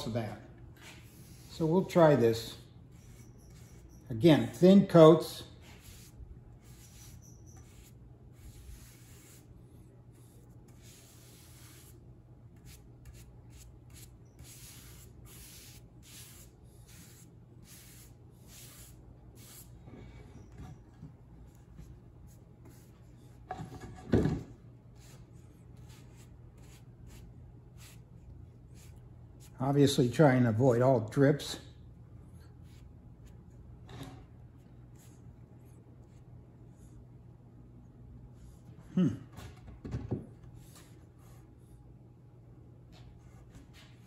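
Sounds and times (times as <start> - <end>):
steady low hum: 0.0 - 39.7
paintbrush swishing on wood: 0.8 - 4.6, 5.4 - 12.0, 12.6 - 19.8, 24.9 - 28.1, 28.7 - 29.6
brief vocal grunt: 38.9 - 39.4.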